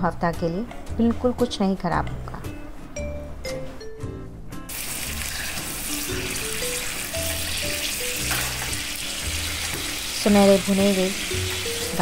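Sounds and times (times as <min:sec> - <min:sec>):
background music: 0:00.0 - 0:12.0
garlic sizzling in hot oil: 0:04.7 - 0:12.0.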